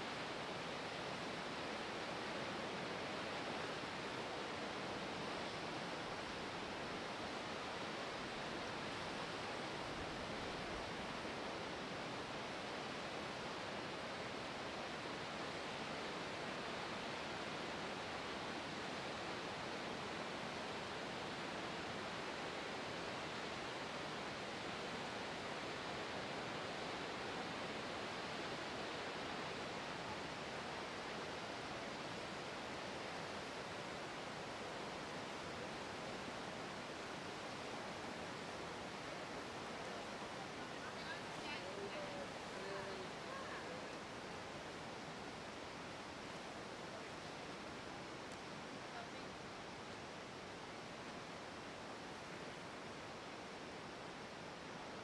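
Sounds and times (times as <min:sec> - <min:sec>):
rush of falling water: 0:00.0 - 0:55.0.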